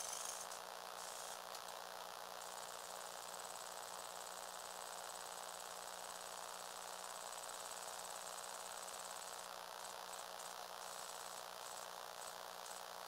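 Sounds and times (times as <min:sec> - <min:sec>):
small electric motor whining: 0:00.0 - 0:01.7.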